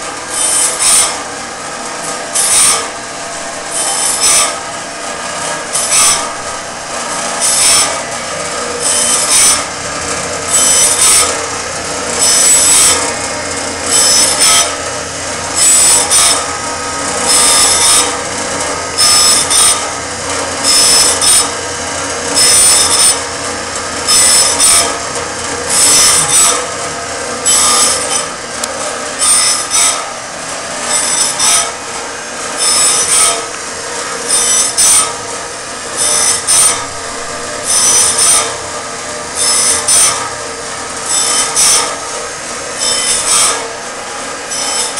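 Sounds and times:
grinding wheel rasping on blade: 0.0s - 44.9s
machine motor whirring: 0.0s - 44.9s.

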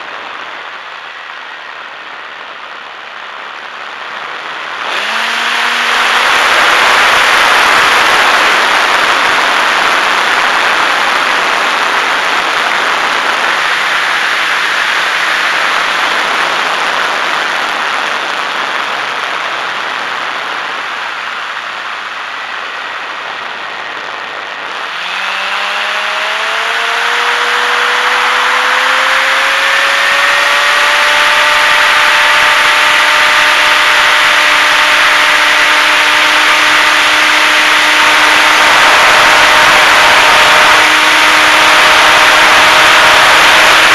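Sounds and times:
air rushing over camera: 0.0s - 30.2s
electric motor whine: 0.0s - 43.9s.

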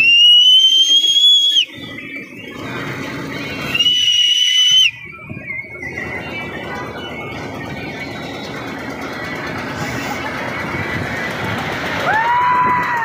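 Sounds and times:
shrill whistle blasts: 0.0s - 2.3s, 3.6s - 5.9s
fairground noise hum: 0.0s - 13.0s.

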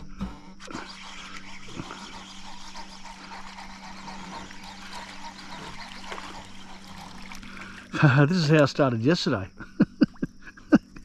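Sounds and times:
steady low hum: 0.0s - 11.0s
faint animal calls: 0.7s - 7.9s.

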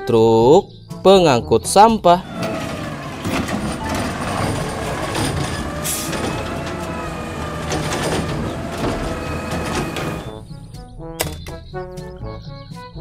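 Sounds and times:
metal clanks: 2.2s - 10.4s
garbage truck diesel engine: 2.2s - 10.7s
hydraulics working: 2.2s - 10.7s.

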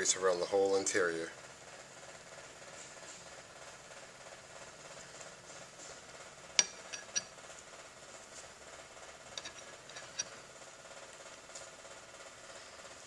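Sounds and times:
metal cylinder clinking on metal: 6.6s - 7.4s, 9.4s - 10.4s.

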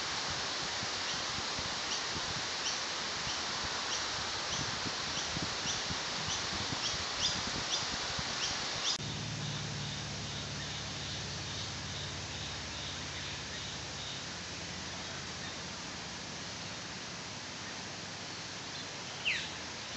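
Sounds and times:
steady hiss: 0.0s - 19.9s
steady low hum: 8.9s - 18.7s.

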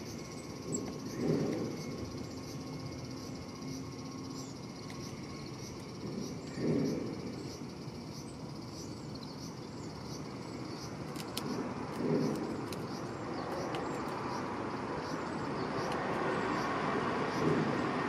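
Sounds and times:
road traffic noise: 0.0s - 18.0s
bird pecking at feeder: 11.0s - 14.4s.

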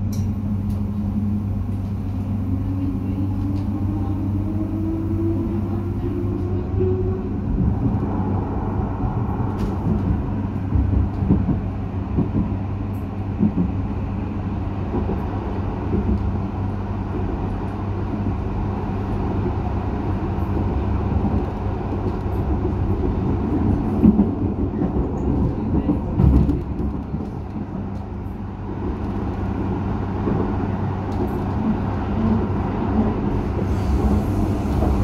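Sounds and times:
tram wheels rumbling on rail: 0.0s - 35.0s.

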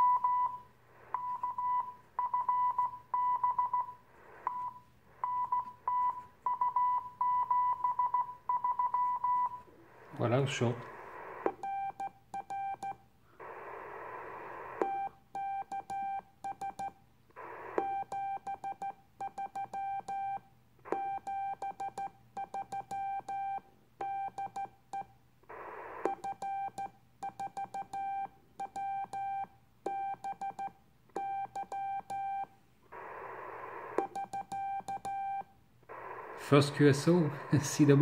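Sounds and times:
radio hiss bursts: 9.7s - 11.6s, 13.4s - 14.8s, 35.8s - 38.0s.

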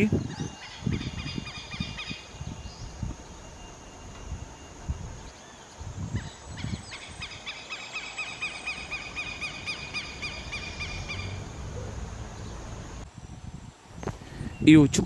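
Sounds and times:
bird twittering trill: 0.0s - 13.3s.

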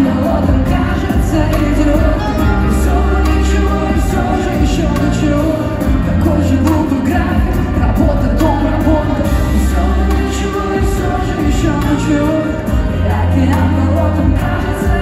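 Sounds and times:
heavy bass: 0.0s - 15.0s
person singing: 0.0s - 15.0s
drumbeat: 0.4s - 12.0s.

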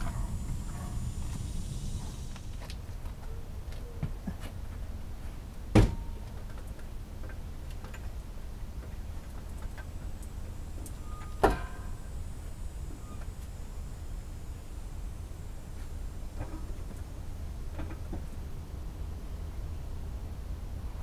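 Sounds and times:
metal clanks with ring: 11.0s - 12.1s.

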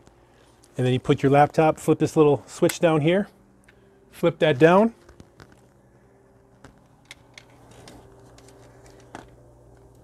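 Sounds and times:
cooling pad fans humming: 0.0s - 10.0s
laptop being handled: 5.0s - 5.8s, 6.5s - 10.0s.

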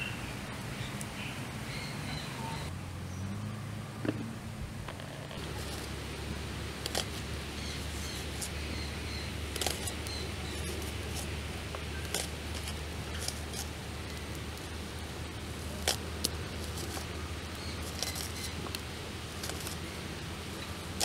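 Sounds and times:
wood fire crackling: 4.7s - 21.0s.

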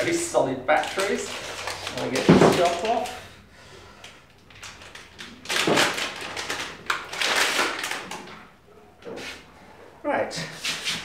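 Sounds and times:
plastic bag rustling and crinkling: 0.0s - 3.4s, 4.0s - 8.5s.

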